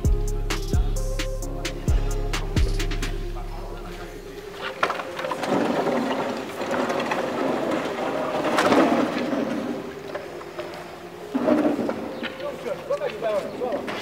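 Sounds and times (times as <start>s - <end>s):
scrap debris clattering: 4.6s - 10.7s.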